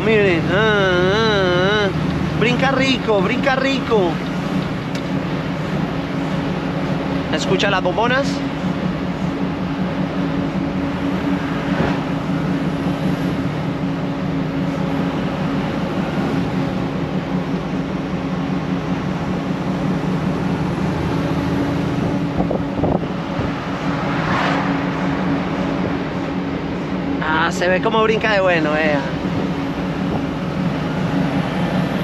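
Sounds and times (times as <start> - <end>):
truck diesel engine droning: 0.0 - 32.0
tyre and road noise: 8.4 - 28.1.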